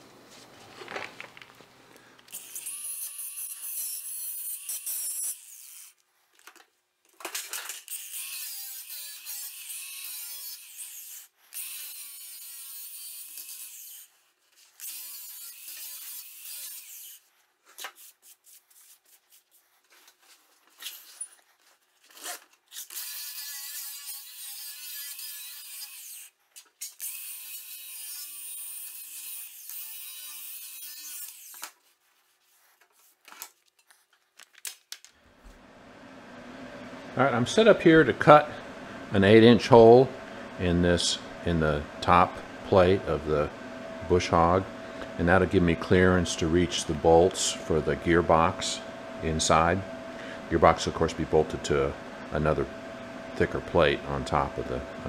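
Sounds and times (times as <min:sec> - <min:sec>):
angle grinder grinding steel: 0:02.3 - 0:06.0, 0:07.7 - 0:14.1, 0:14.8 - 0:17.3, 0:22.2 - 0:31.8.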